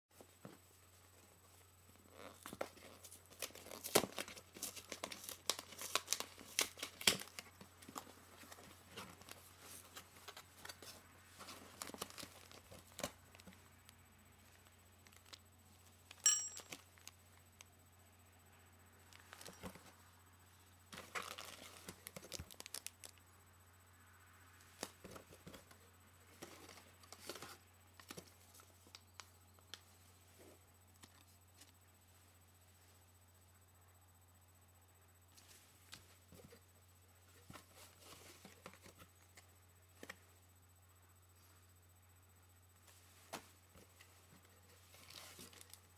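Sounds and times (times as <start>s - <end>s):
steady low hum: 0.1s - 45.9s
packaging crinkling and tearing: 2.3s - 7.6s, 21.0s - 23.2s
sharp ringing click: 16.2s - 16.7s.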